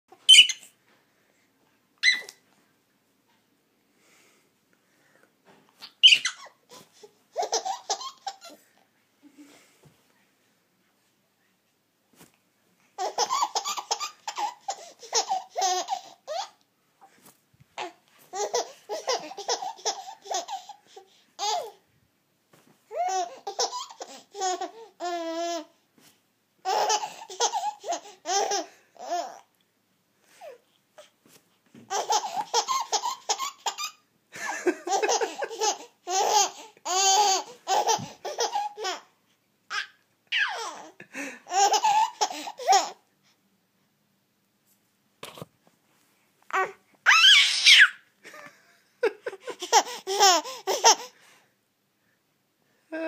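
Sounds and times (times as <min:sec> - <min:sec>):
baby giggling: 0:05.8 - 0:08.6, 0:13.0 - 0:16.6, 0:17.8 - 0:21.8, 0:22.9 - 0:25.7, 0:26.6 - 0:29.4, 0:31.9 - 0:34.0, 0:34.7 - 0:39.1, 0:39.7 - 0:43.0, 0:49.1 - 0:51.2.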